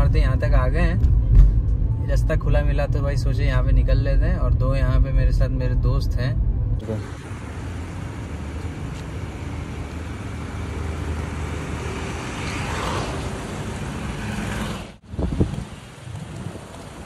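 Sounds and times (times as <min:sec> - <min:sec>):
road traffic rumble: 0:00.0 - 0:17.0
wind on microphone: 0:15.0 - 0:17.0.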